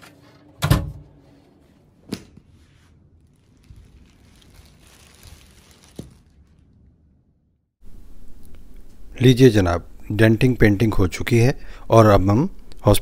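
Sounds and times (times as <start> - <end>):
thin plastic bag crinkling: 3.1 - 7.1.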